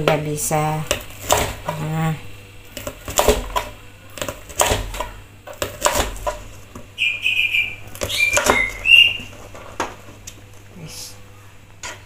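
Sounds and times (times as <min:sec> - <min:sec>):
knife chopping on cutting board: 0:00.9 - 0:01.7, 0:02.8 - 0:06.4.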